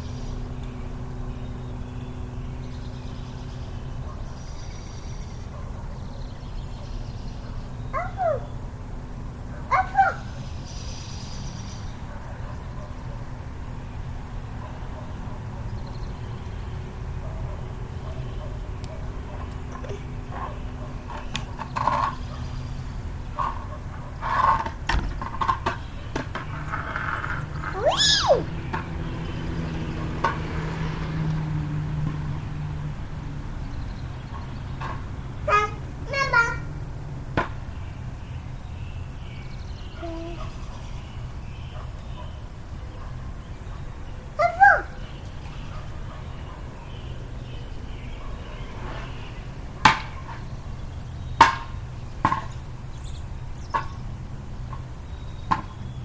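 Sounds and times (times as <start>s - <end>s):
vehicle engine humming: 0.0s - 56.0s
short rising and falling cry: 27.7s - 28.5s.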